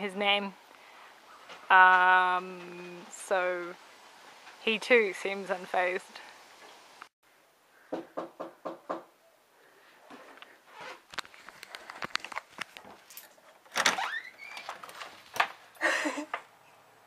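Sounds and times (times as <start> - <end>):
camera handling clicks and rustling: 11.1 - 13.2.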